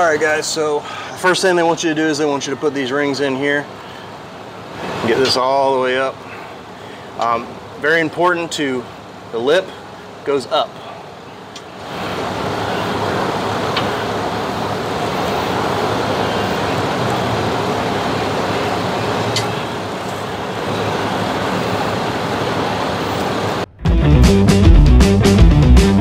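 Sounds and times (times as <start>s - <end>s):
steady rushing noise: 11.8s - 25.4s
rock music with guitar: 23.7s - 26.0s.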